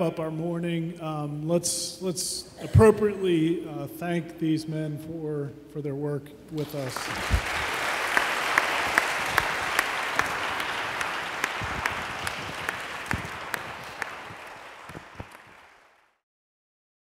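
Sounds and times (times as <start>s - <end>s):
nearby hands clapping: 6.6s - 16.1s
audience applauding: 6.6s - 16.2s.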